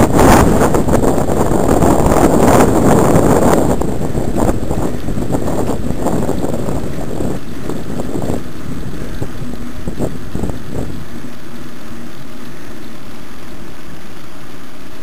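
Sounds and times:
wind buffeting microphone: 0:00.0 - 0:13.0.

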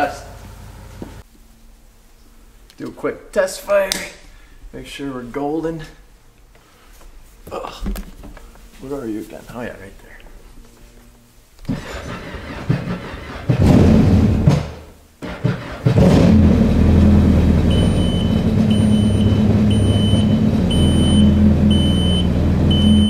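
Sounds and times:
high beep: 0:17.7 - 0:23.0.

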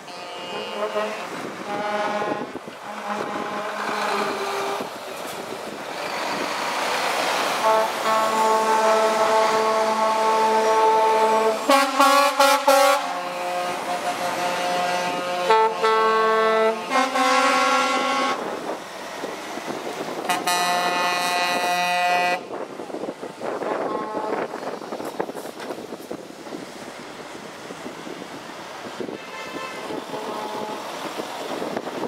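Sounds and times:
truck air horns blowing: 0:00.0 - 0:04.9, 0:07.6 - 0:18.6, 0:20.2 - 0:22.6, 0:23.6 - 0:24.7, 0:29.0 - 0:31.0.

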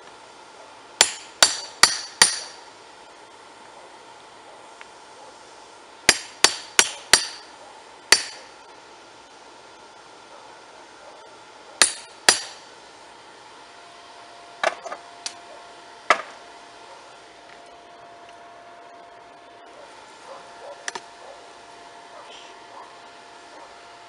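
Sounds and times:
hammer striking chisel on metal: 0:01.0 - 0:02.6, 0:06.1 - 0:07.5, 0:08.1 - 0:08.5, 0:11.8 - 0:12.6.

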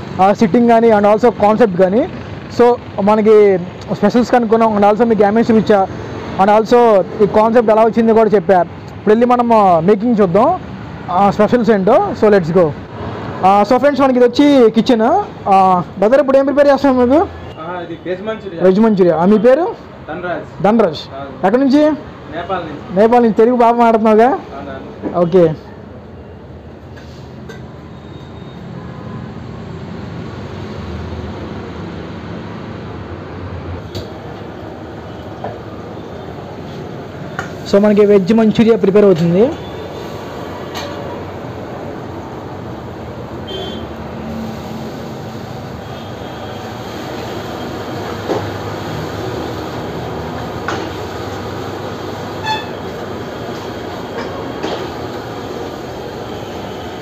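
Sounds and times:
gas burner rumbling: 0:00.0 - 0:10.5, 0:33.8 - 0:57.0
short ringing tone: 0:27.7 - 0:28.7.

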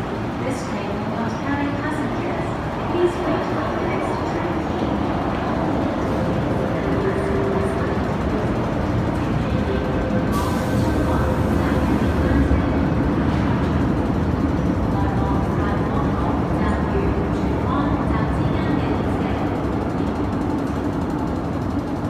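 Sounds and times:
metro train rumble: 0:00.0 - 0:22.0
train wheel and air rush: 0:02.4 - 0:15.3.

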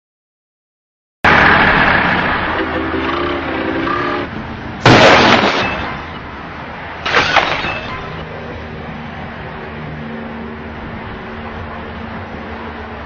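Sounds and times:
car crash: 0:04.8 - 0:06.2, 0:07.0 - 0:08.2
glass breaking: 0:04.8 - 0:06.2, 0:07.0 - 0:08.2.

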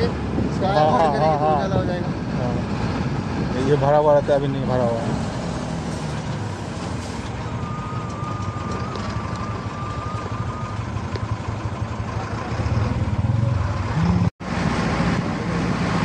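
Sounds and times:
truck engine running: 0:00.0 - 0:16.0
truck body rumbling: 0:04.9 - 0:14.3.

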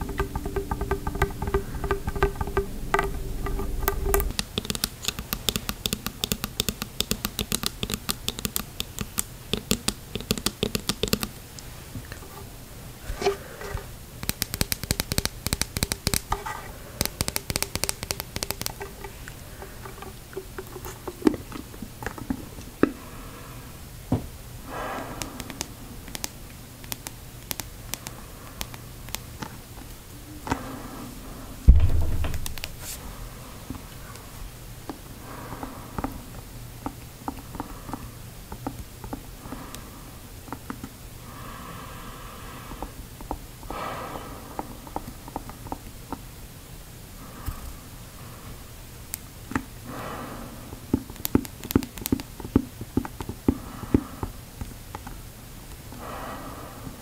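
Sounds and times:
fingernails tapping on plastic tube: 0:00.0 - 0:11.4, 0:13.2 - 0:23.0, 0:24.7 - 0:29.5, 0:36.8 - 0:39.8, 0:50.9 - 0:55.1
loud low thump: 0:31.7 - 0:32.5.

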